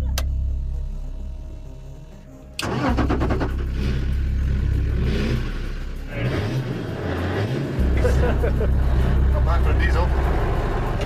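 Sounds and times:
engine starting and revving: 2.6 - 11.0.

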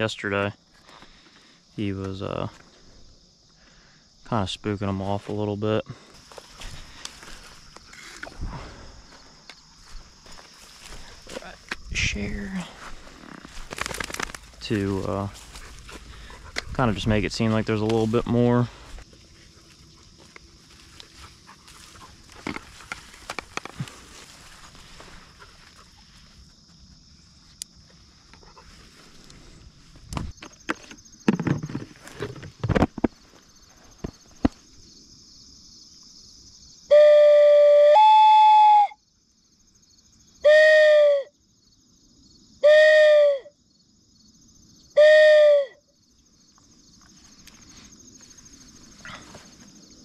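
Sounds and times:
rustling and clatter of gear: 12.9 - 16.8
hand-blown dove call cooing: 36.9 - 39.0, 40.4 - 41.3, 42.6 - 43.5, 45.0 - 45.8.

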